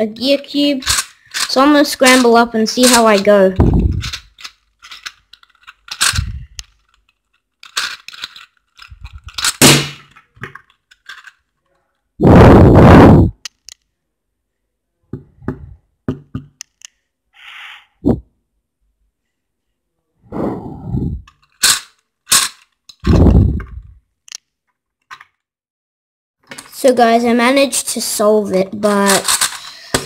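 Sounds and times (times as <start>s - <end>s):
plastic puzzle gears clicking: 0.8s - 11.8s, 13.4s - 13.8s, 21.2s - 25.4s, 29.0s - 30.0s.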